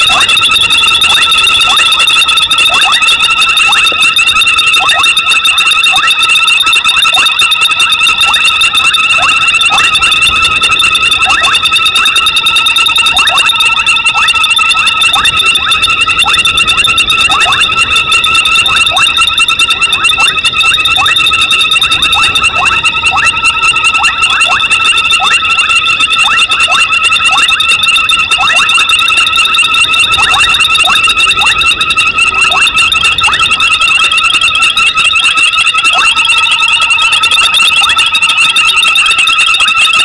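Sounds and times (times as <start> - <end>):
frog chirps rising: 0.0 - 39.9
frogs trilling: 0.0 - 40.0.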